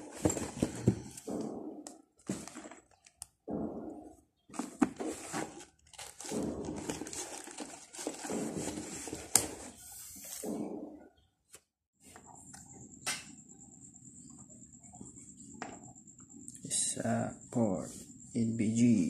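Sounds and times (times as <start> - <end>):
headset case rustling: 0.0 - 1.4, 2.2 - 3.2, 4.5 - 10.4.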